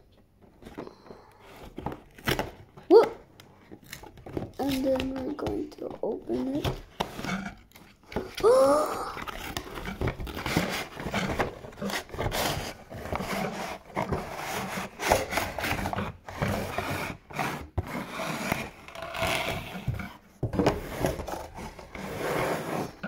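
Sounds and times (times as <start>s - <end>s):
cardboard boxes scraping on wooden table: 6.3s - 8.4s, 9.2s - 23.0s.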